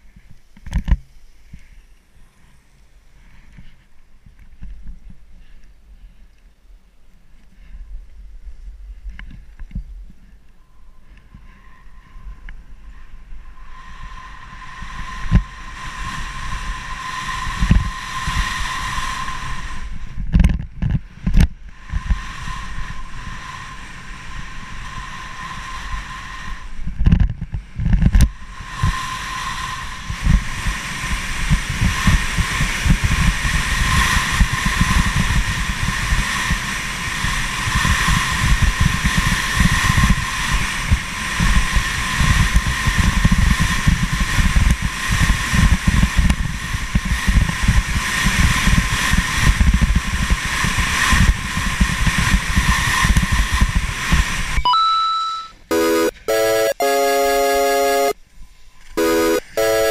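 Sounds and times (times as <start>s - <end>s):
wind buffeting camera microphone: 7.6s - 54.6s
thin steady whistle: 21.9s - 26.9s, 28.4s - 31.0s.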